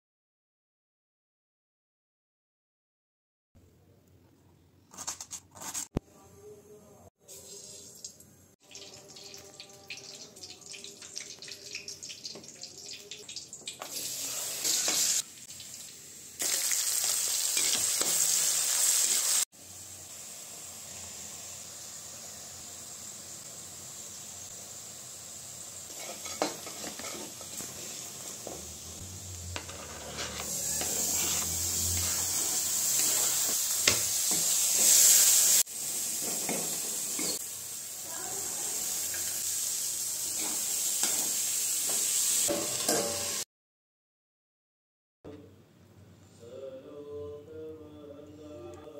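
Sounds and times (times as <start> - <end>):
oil sizzling: 7.2 - 43.5.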